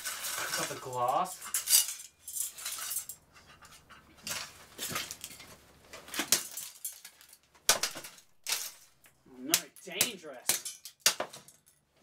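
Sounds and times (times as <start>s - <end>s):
metal skillet clanking and scraping: 0.0s - 5.5s.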